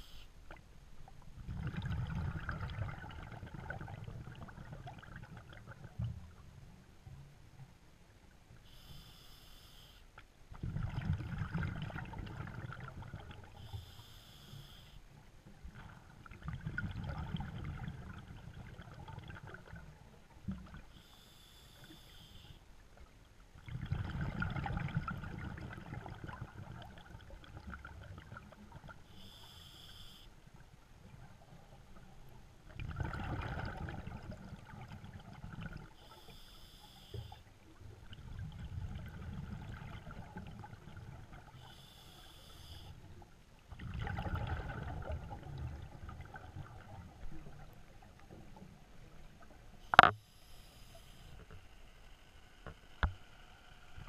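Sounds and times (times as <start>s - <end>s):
rumble of exhaled bubbles: 1.2s - 6.6s, 10.5s - 13.6s, 15.5s - 20.9s, 23.6s - 29.1s, 31.0s - 36.0s, 37.8s - 41.6s, 43.7s - 50.1s
regulator hissing inhale: 8.6s - 10.1s, 13.6s - 15.0s, 21.0s - 22.6s, 29.1s - 30.3s, 36.0s - 37.5s, 41.6s - 43.0s, 50.2s - 51.5s.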